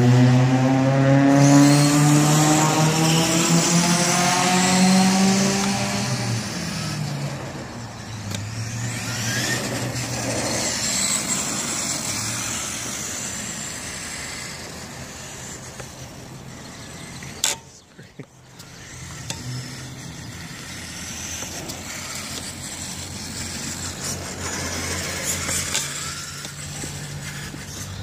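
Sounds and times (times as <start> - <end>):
electric motor whining: 0.0 - 17.7, 18.4 - 28.0.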